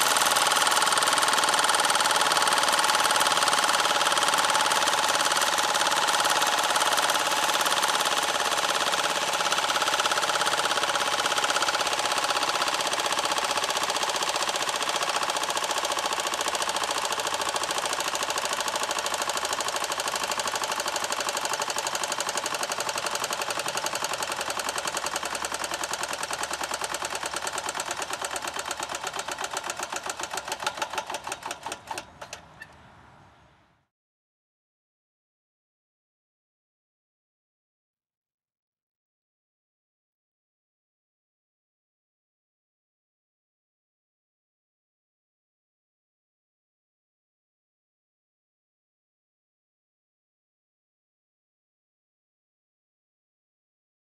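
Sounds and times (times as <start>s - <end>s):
engine running with mechanical beat: 0.0s - 32.8s.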